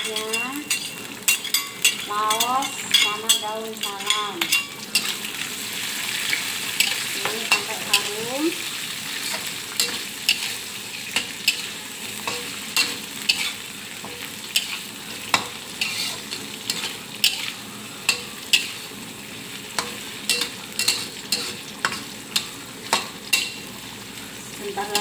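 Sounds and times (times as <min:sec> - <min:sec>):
food sizzling in hot oil: 0:00.0 - 0:25.0
spatula scraping a metal wok: 0:00.1 - 0:05.2, 0:09.1 - 0:19.0, 0:19.8 - 0:23.7.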